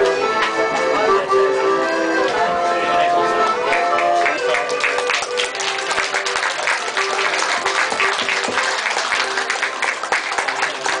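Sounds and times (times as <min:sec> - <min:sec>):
faint music: 0:00.0 - 0:11.0
crowd clapping: 0:03.6 - 0:11.0.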